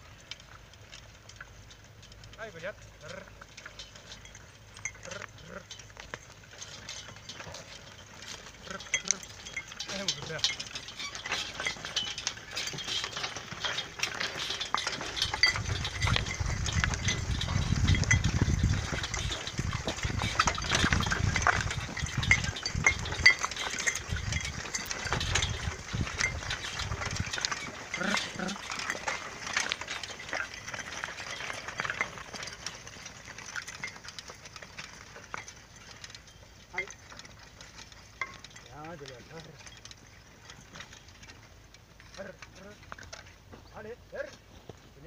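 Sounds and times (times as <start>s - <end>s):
metal tool rattling and clinking: 0.0s - 45.0s
chains jingling: 6.6s - 34.4s.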